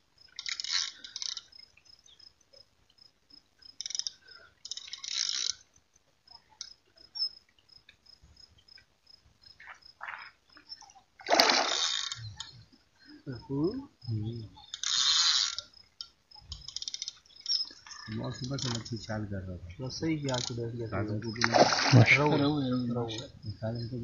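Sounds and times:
cricket chirping: 0.0 - 24.0
fish splashing at water surface: 10.9 - 12.2, 21.3 - 22.4.

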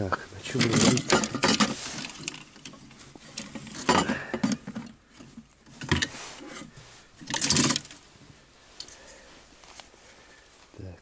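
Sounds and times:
fishing gear rattling in tackle box: 0.4 - 8.0.

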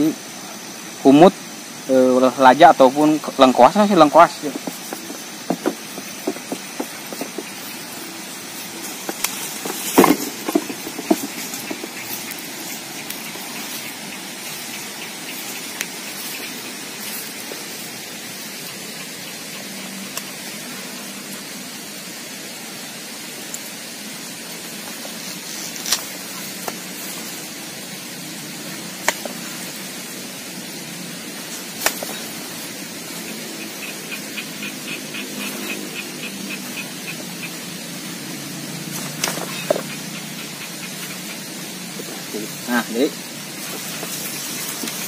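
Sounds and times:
steady outdoor hiss: 0.0 - 45.0.

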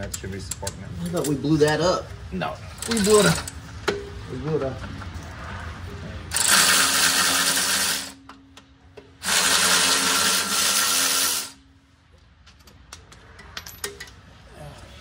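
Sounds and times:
power wrench whirring: 6.3 - 8.2, 9.2 - 11.6.

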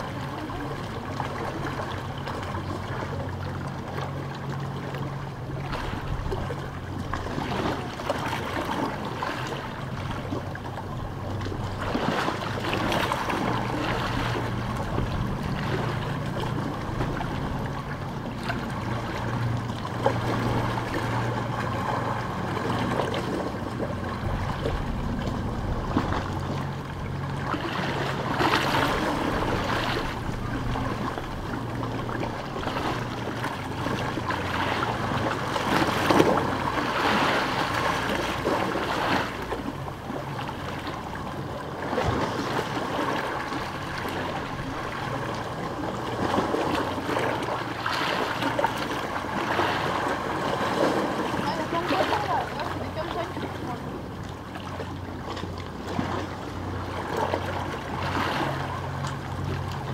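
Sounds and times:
low steady hum: 0.0 - 59.9
small waves lapping on stones: 27.4 - 53.9.

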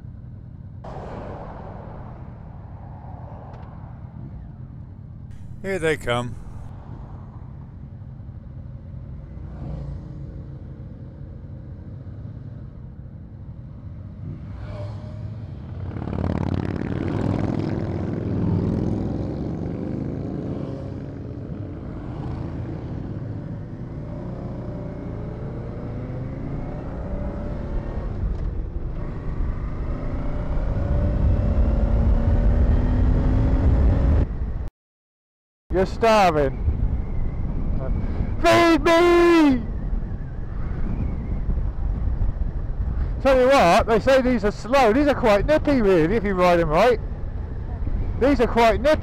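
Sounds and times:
motorcycle engine idling and accelerating: 0.0 - 34.7, 39.7 - 49.0
motorcycles passing by: 1.3 - 6.7, 8.4 - 12.4, 13.7 - 34.2, 41.2 - 49.0.

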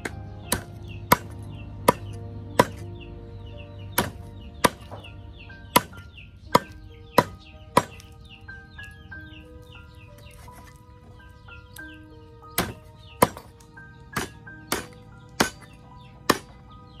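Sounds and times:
cleaver chopping on wooden block: 0.0 - 2.9, 3.9 - 5.1, 5.7 - 8.2, 12.6 - 16.6.

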